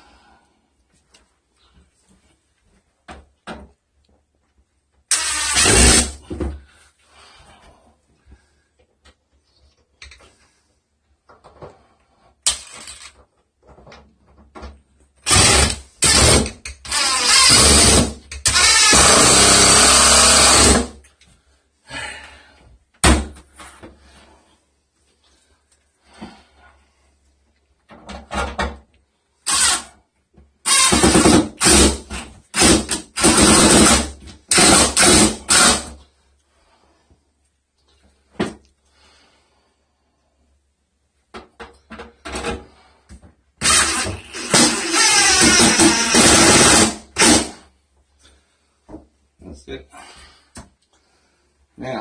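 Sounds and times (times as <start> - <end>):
cordless drill driving screws: 5.1 - 6.2, 15.2 - 20.9, 29.5 - 29.9, 30.6 - 35.9, 43.6 - 47.5.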